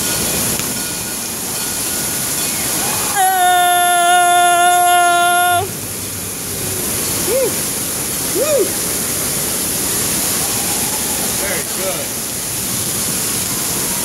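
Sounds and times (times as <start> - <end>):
water rushing down a slide: 0.0 - 14.0
person whooping: 3.0 - 5.7, 7.2 - 7.6, 8.3 - 8.8
person yelling: 3.1 - 5.7.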